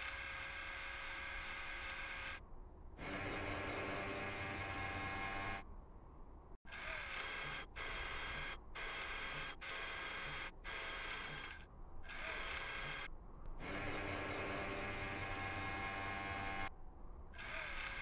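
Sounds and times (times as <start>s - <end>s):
robotic arm motors whirring: 6.7s - 16.7s, 17.4s - 18.0s.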